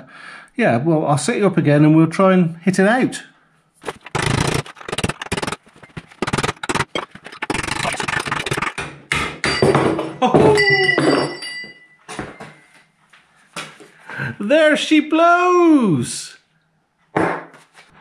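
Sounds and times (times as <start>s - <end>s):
metal ringing: 9.4s - 12.6s.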